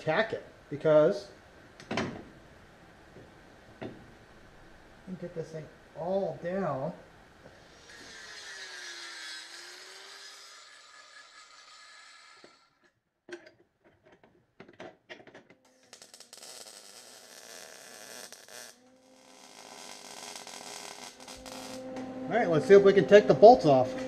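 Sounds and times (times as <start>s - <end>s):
welding crackle: 7.6s - 12.8s, 15.6s - 21.9s.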